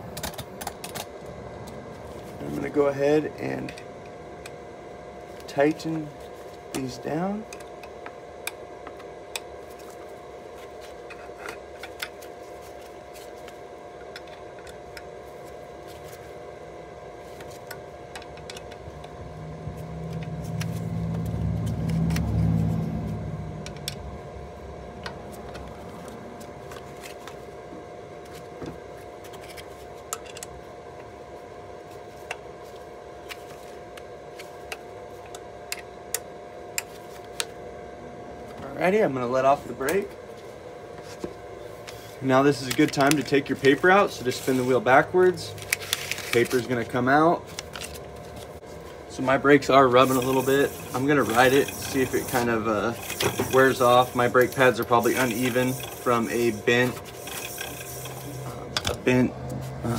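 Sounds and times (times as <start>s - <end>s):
faint steady whine: 0.0s - 59.9s
passing vehicle engine: 19.4s - 23.6s.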